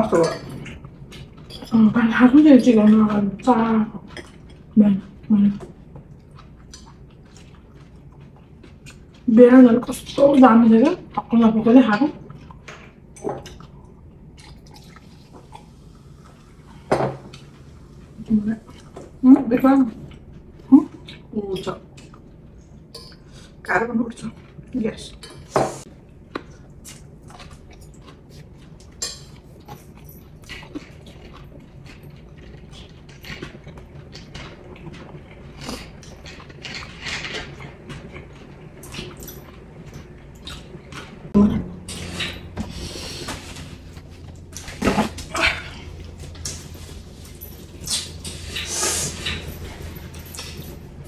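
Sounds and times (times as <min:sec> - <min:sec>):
people chewing: 0:00.0 - 0:19.2, 0:24.2 - 0:51.0
forks clicking against plates: 0:47.8 - 0:50.8.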